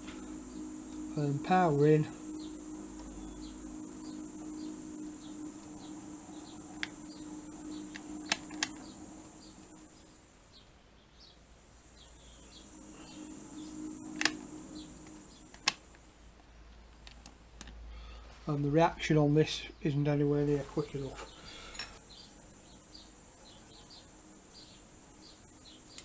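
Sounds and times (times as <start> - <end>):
milling machine spindle hum: 0.0 - 10.2, 12.0 - 15.9
sharp clicks: 6.6 - 9.0, 14.1 - 16.0.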